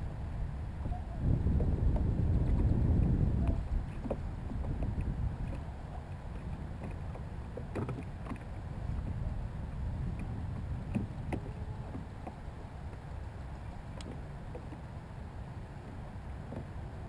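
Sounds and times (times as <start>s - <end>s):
water against hull: 0.0s - 17.0s
wind on microphone: 0.0s - 17.0s.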